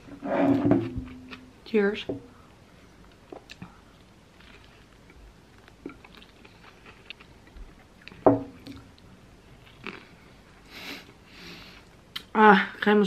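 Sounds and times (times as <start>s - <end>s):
wet chewing clicks and crackles: 3.1s - 10.2s.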